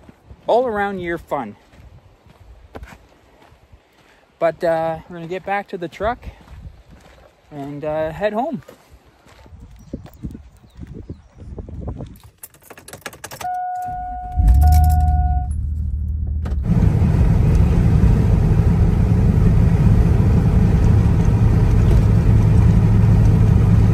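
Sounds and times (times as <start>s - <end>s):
keys jingling: 12.1s - 15.7s
door clicks: 12.2s - 15.2s
engine and road noise inside car: 13.2s - 23.9s
two-part electronic warning chime: 13.4s - 15.8s
car engine starting and idling: 13.4s - 23.9s.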